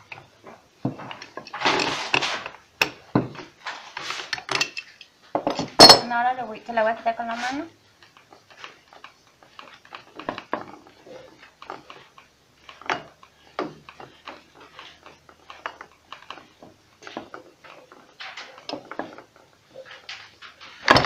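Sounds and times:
metal parts clicking and knocking: 1.1s - 6.1s.

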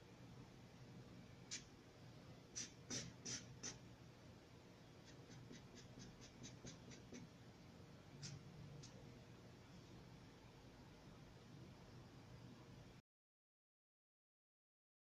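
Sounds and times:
marker strokes on paper: 1.5s - 1.7s, 2.6s - 3.8s, 5.0s - 7.3s, 8.2s - 9.0s.

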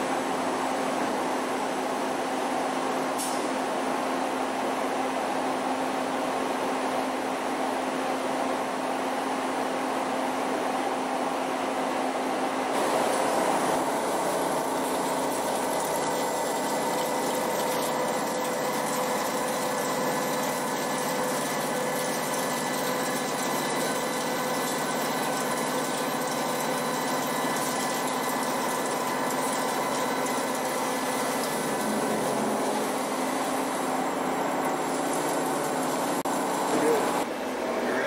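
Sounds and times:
machine hum: 12.6s - 38.0s.

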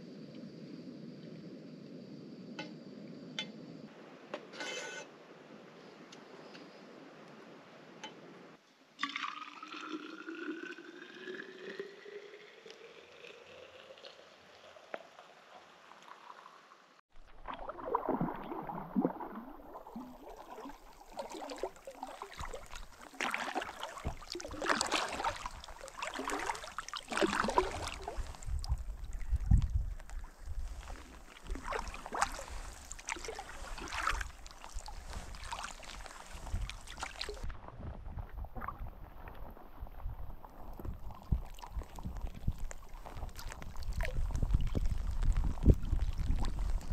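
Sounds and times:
liquid poured into cup: 9.0s - 15.3s
kayak paddle splashing: 17.1s - 46.9s.

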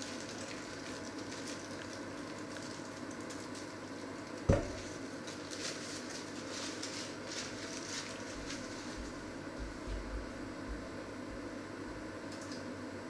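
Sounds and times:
faint rustles and clicks: 0.0s - 10.1s
knock on metal mixing bowl: 4.5s - 4.8s.

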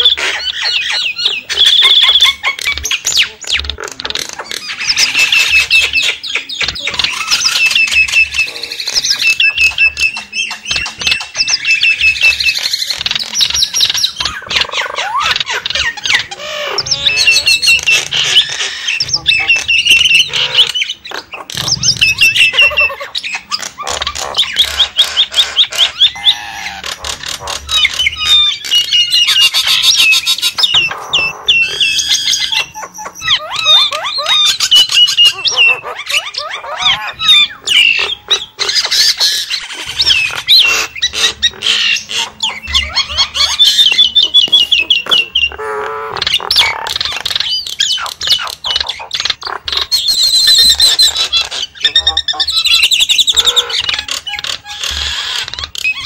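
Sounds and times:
myna chattering and squawking: 0.0s - 56.0s.

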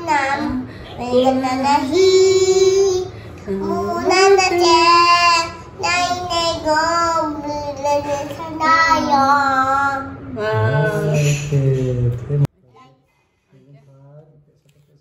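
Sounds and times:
young girl singing: 0.0s - 10.2s.

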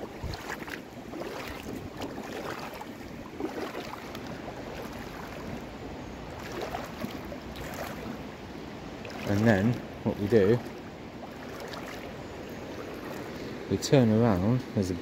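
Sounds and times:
splashes of person wading: 0.0s - 13.7s
shallow river water rushing: 0.0s - 15.0s.

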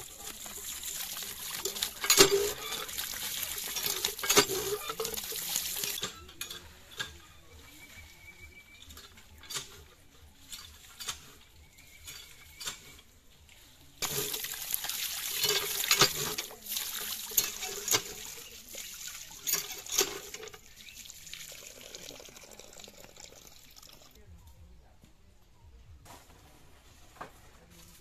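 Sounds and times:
water gushing and splashing: 0.0s - 6.0s, 14.0s - 23.2s.

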